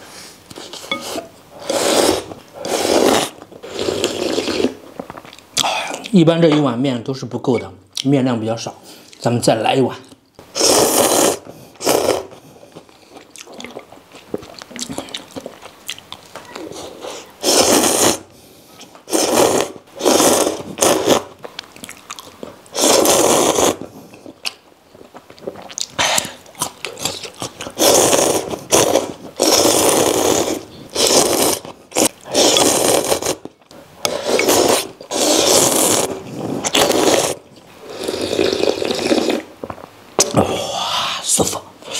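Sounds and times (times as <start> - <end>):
slurping noodles: 0.6 - 4.9, 10.5 - 13.8, 16.6 - 18.3, 19.0 - 21.4, 22.7 - 24.4, 25.4 - 39.5
chewing: 12.7 - 17.0, 24.1 - 27.8.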